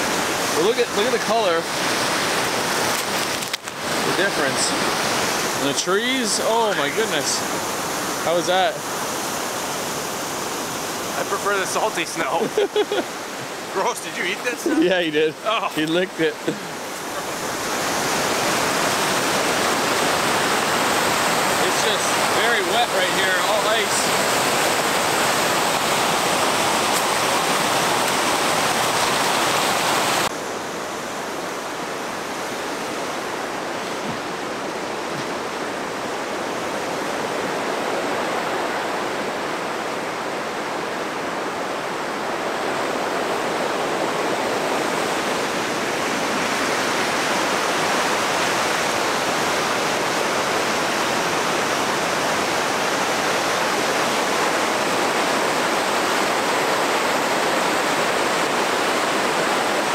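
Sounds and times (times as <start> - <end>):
waterfall and rapids rushing: 0.0 - 59.9.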